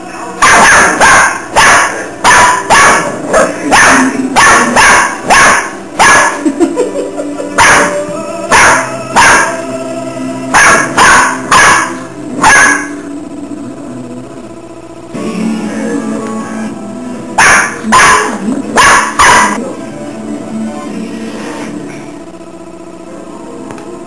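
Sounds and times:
dog barking: 0.4 - 6.4, 7.6 - 9.6, 10.5 - 13.0, 17.4 - 19.6.

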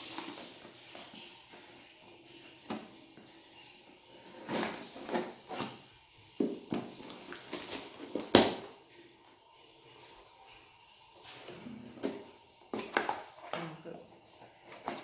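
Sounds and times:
packaging rustling and crinkling: 0.0 - 8.8, 14.2 - 15.0.

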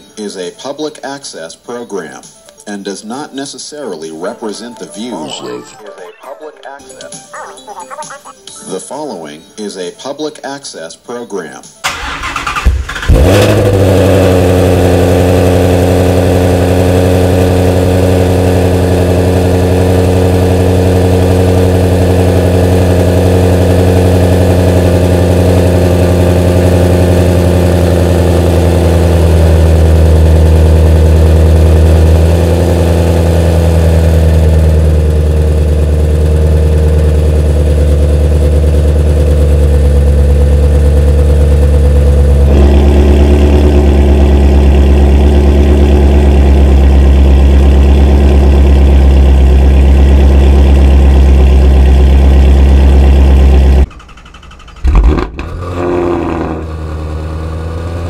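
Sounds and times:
car engine starting and idling: 11.8 - 58.0.

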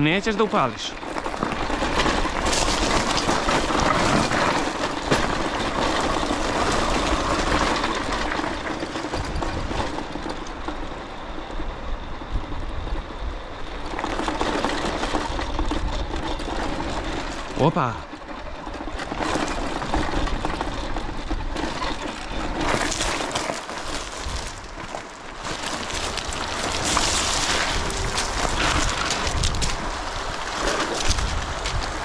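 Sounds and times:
frame and parts rattling: 0.0 - 10.6
tyres on loose stones: 0.0 - 11.0, 13.7 - 32.0
two-stroke moped engine: 0.0 - 32.0.

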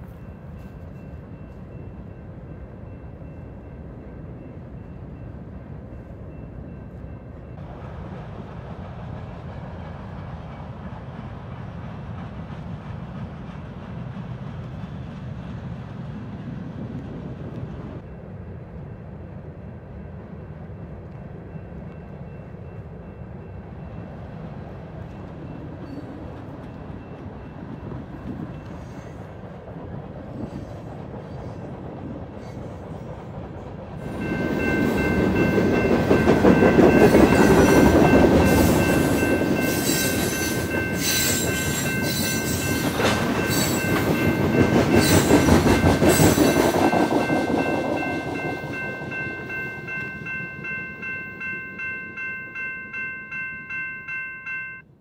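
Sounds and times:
freight train rolling past: 0.0 - 55.0
wheels clacking over rail joints: 33.4 - 53.9
high wheel squeal: 37.0 - 44.1.

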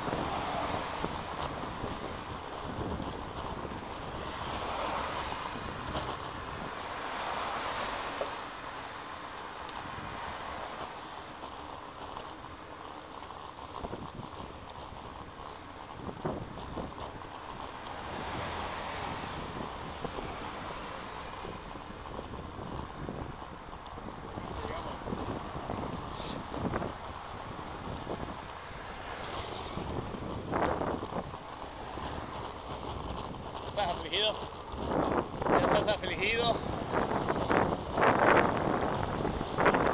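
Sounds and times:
bicycle tyre noise on road: 0.0 - 39.9.

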